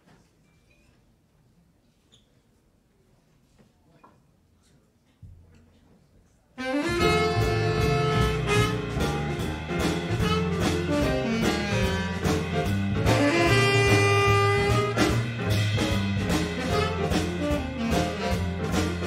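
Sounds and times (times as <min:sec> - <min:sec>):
tenor saxophone: 0:06.6 - 0:09.4, 0:10.1 - 0:15.4, 0:16.5 - 0:19.0
double bass: 0:06.6 - 0:19.0
drums: 0:06.6 - 0:19.0
piano: 0:06.6 - 0:19.0
trumpet: 0:06.6 - 0:19.0.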